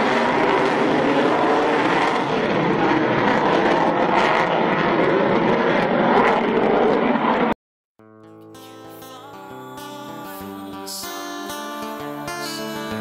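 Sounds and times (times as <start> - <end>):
loud jet engine noise: 0.0 - 7.6.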